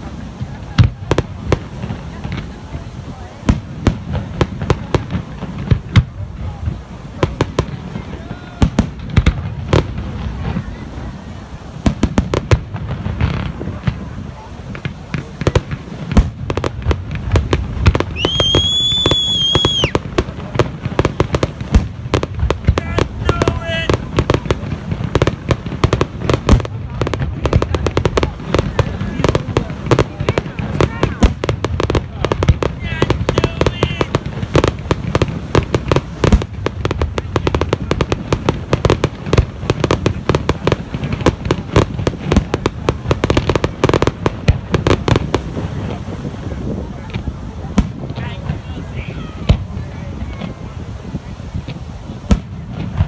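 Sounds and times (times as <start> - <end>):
fireworks bangs and pops: 0.0 - 53.0
high steady whistle: 18.1 - 20.0.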